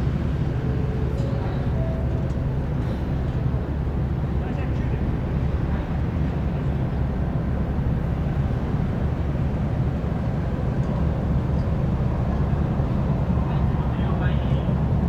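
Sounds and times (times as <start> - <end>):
ferry engines rumbling: 0.0 - 15.0.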